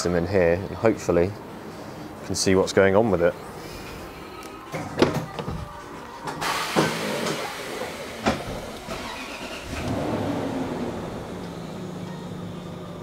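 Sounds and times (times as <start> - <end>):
car engine starting and idling: 6.4 - 13.0.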